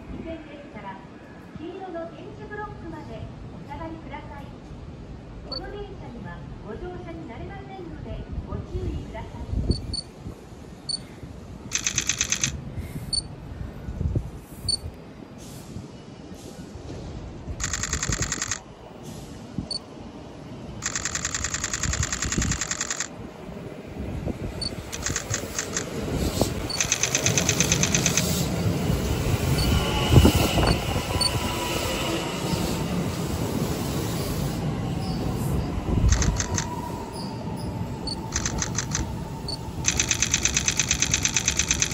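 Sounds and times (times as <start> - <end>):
train wheels rumbling: 16.4 - 19.8, 20.8 - 41.9
short high electronic beeps: 26.7 - 28.4.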